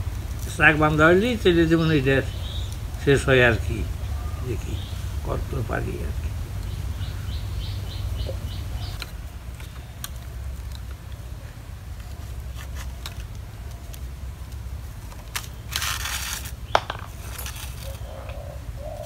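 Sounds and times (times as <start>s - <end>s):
bamboo strips clicking and rustling: 0.0s - 4.0s, 8.3s - 18.4s
steady low rumble: 0.0s - 12.5s
small bird chirping: 1.8s - 5.4s, 6.6s - 9.0s.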